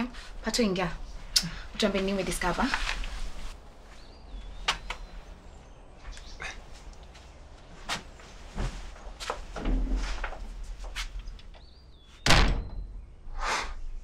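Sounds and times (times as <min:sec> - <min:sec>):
footsteps: 0:06.0 - 0:11.4.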